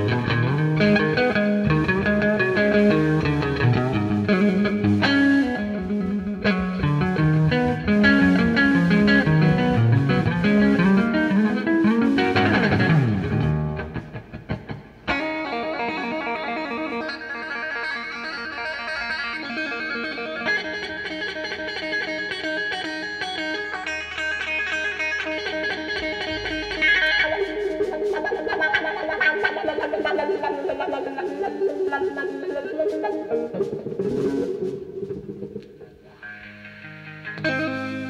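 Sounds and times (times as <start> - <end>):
blues-rock band: 0.0 - 38.0
electric guitar solo: 0.0 - 38.0.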